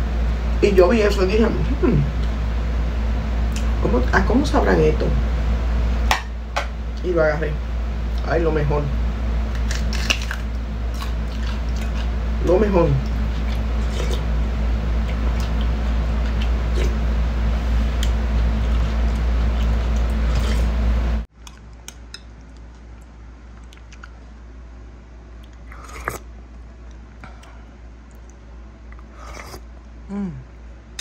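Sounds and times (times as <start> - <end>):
loud steady hum: 0.0 - 31.0
person chewing: 9.6 - 12.2, 13.0 - 17.1, 17.7 - 20.8, 21.4 - 24.4, 25.3 - 29.7.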